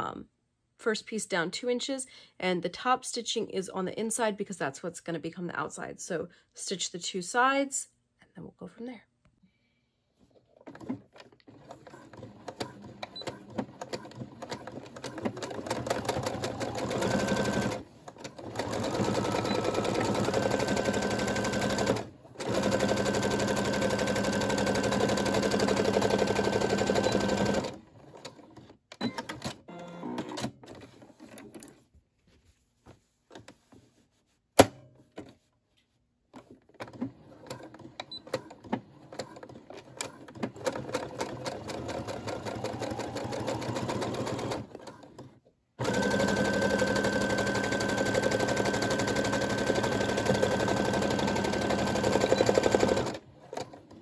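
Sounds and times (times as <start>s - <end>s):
sewing machine stitching: 10.6s - 31.5s, 36.8s - 54.0s.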